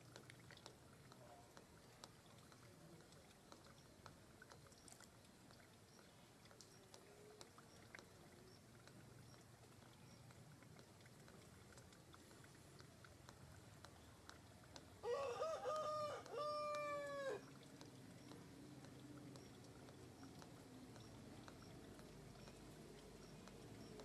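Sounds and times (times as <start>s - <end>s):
soft clicks: 0.1s - 9.4s, 17.6s - 24.0s.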